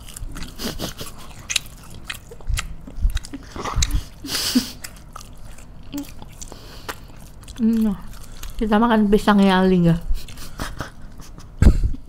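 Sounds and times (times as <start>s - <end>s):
biting and chewing fried snacks: 0.0s - 8.8s.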